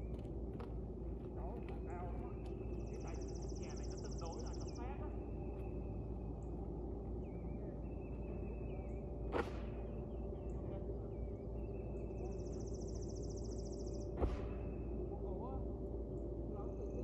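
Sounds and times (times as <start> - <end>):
outdoor rumble: 0.0 - 12.2
faint bird chirps: 1.4 - 15.5.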